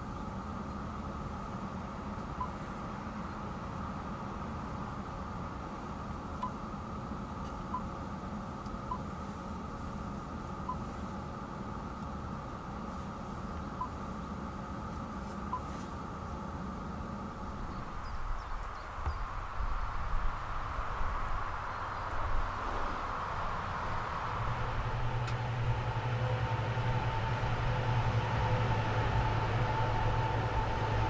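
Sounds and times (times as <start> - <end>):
low hum: 0.0 - 31.0
diesel engine idling: 20.8 - 31.0.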